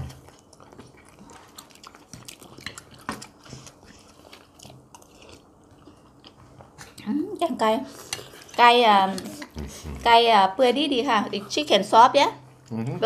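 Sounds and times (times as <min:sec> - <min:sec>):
people chewing food: 0:00.0 - 0:13.0.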